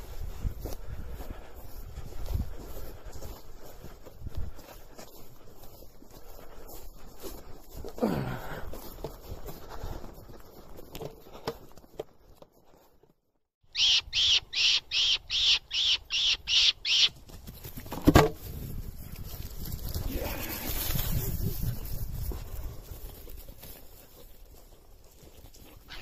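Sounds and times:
high squeaks of fox caller: 13.7s - 17.1s.

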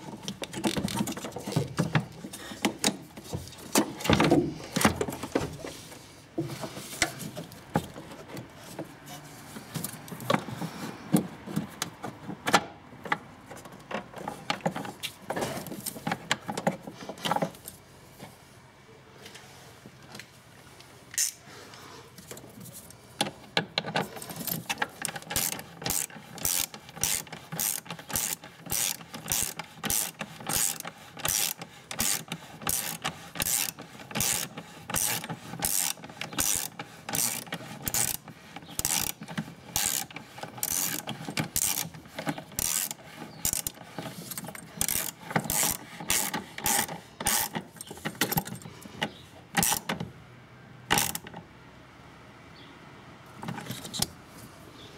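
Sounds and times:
ratchet wrench clicking: 24.4s - 47.6s, 49.6s - 49.9s, 50.9s - 51.3s.

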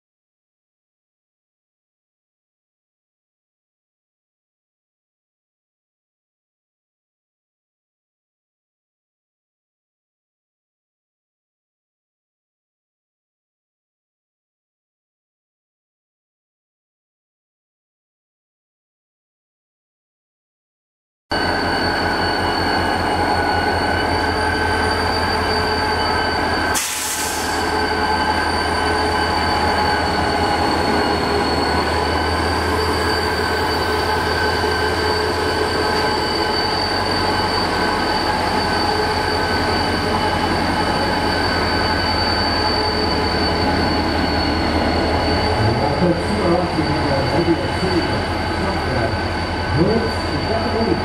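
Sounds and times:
diesel locomotive rumbling past: 21.4s - 51.0s
high-pitched whine: 21.4s - 51.0s.

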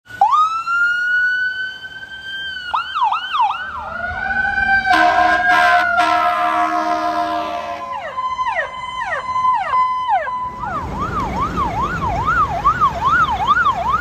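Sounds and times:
fire truck siren wailing: 0.1s - 14.0s
air horn blasts: 4.4s - 8.8s.

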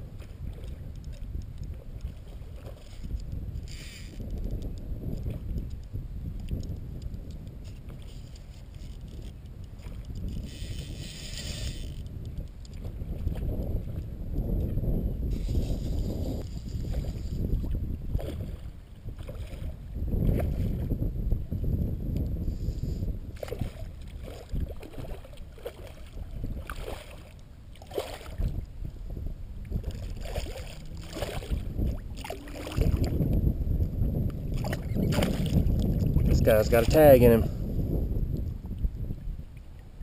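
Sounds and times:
steady low rumble: 19.8s - 40.0s
fish splashing in water: 29.8s - 33.1s.

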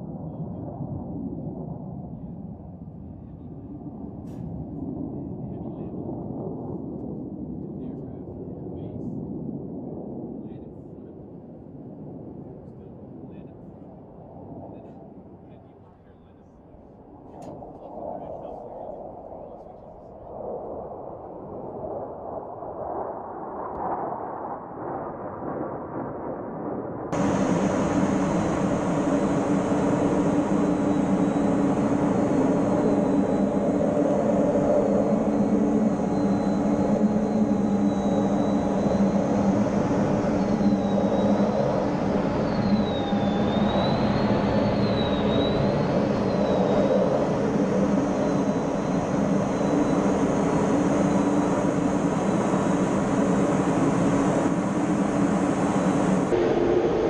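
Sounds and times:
jet engine and airflow rush: 0.0s - 57.0s
low hums: 12.7s - 25.3s, 27.0s - 57.0s
high thin whine: 27.2s - 57.0s.

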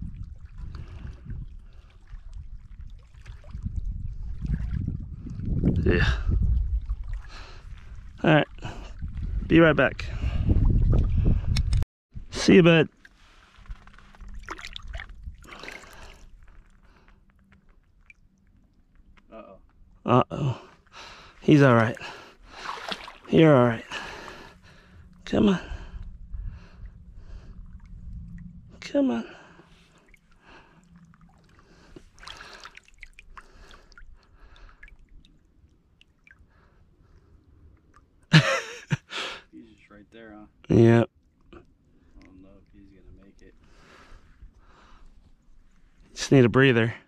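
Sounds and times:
lake water sloshing softly: 0.0s - 5.7s, 6.5s - 9.4s, 12.9s - 20.0s, 20.6s - 38.3s, 39.5s - 46.2s
loud water splash: 22.5s - 23.3s.

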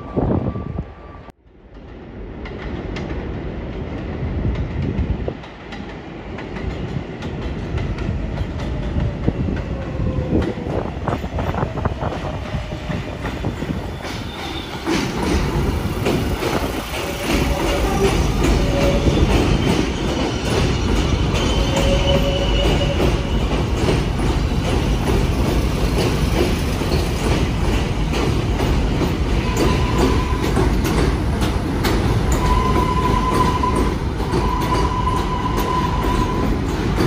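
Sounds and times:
subway train rumble: 0.0s - 37.0s
wheels clacking over rail joints: 12.7s - 37.0s.

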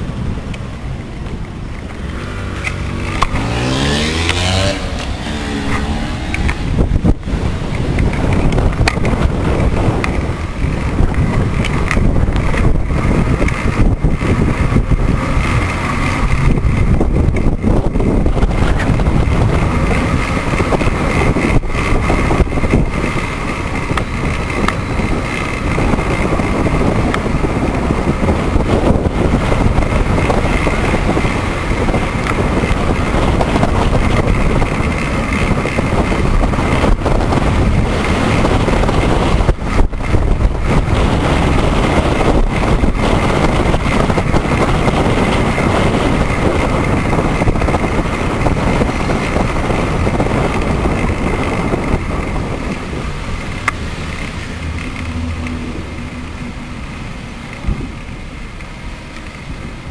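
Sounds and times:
road noise: 0.0s - 59.9s
wind buffeting microphone: 0.0s - 59.9s.

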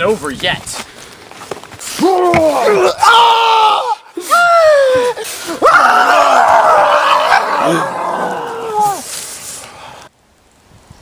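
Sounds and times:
man screaming: 2.0s - 9.0s.

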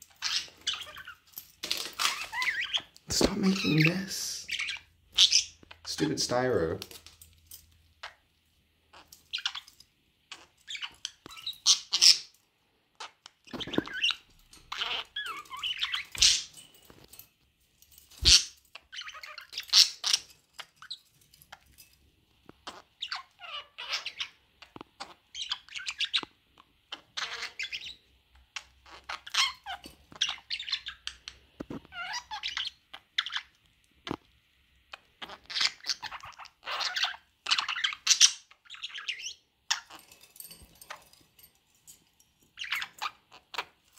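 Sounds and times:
budgerigars chirping: 0.1s - 1.2s, 2.0s - 6.5s, 8.9s - 12.4s, 13.0s - 16.5s, 22.6s - 24.4s, 25.0s - 26.3s, 26.9s - 33.5s, 35.0s - 40.0s.

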